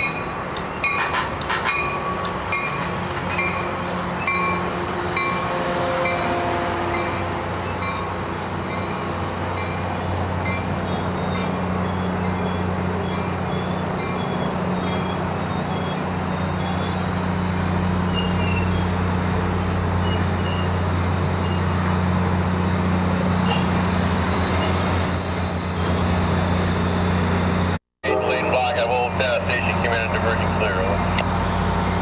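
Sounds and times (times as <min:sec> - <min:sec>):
train wheels rumbling on rails: 0:00.0 - 0:27.8
wheel squeal: 0:09.7 - 0:19.0, 0:20.0 - 0:22.0, 0:23.4 - 0:26.2
low diesel drone: 0:26.2 - 0:32.0.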